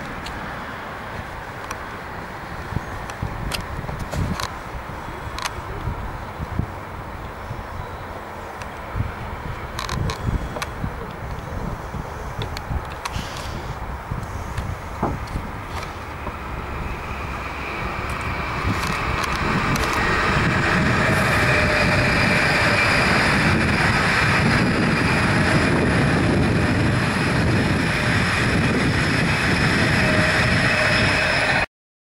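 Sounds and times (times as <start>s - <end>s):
wheels rushing on rail: 0.0s - 31.7s
high-pitched whine: 13.5s - 31.7s.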